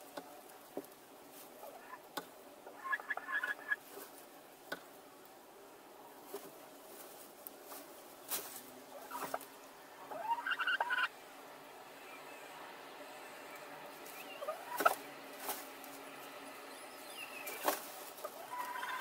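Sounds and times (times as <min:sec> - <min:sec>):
hen calling: 0:01.6 - 0:03.8, 0:08.9 - 0:11.2, 0:11.8 - 0:15.1, 0:16.6 - 0:19.0
straw rustling and scratching: 0:02.8 - 0:04.4, 0:06.2 - 0:09.6, 0:13.6 - 0:19.0.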